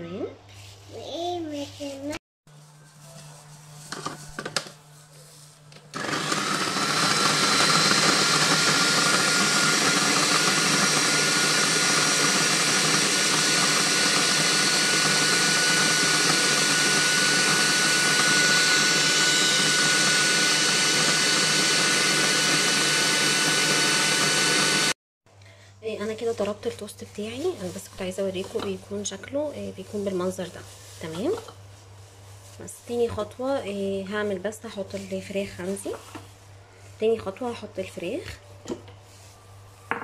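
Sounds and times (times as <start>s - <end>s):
food processor motor whining: 5.9s - 25.0s.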